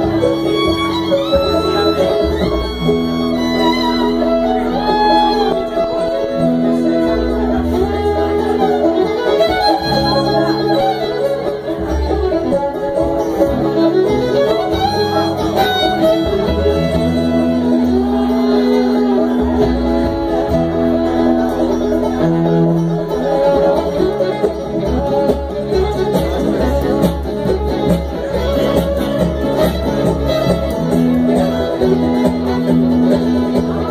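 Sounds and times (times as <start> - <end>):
banjo picking: 0.0 - 33.9
fiddle long held notes: 0.0 - 33.9
guitar picking: 0.0 - 33.9
upright bass walking line: 0.0 - 33.9.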